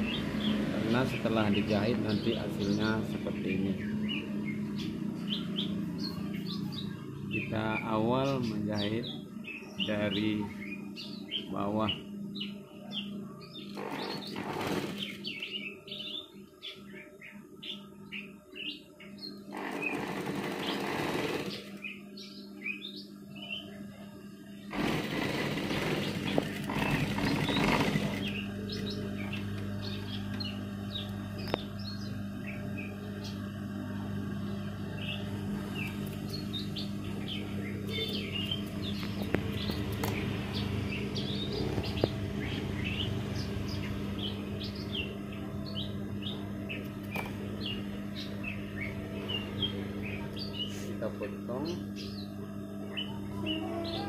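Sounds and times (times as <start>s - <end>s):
small birds chirping: 0.0s - 54.0s
steady low hum: 0.0s - 54.0s
sewing machine stitching: 13.8s - 15.2s, 19.5s - 21.8s, 24.7s - 28.4s.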